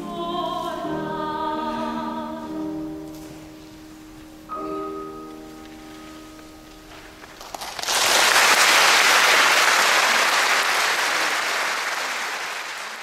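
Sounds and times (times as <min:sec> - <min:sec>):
audience applause: 0:07.4 - 0:13.0.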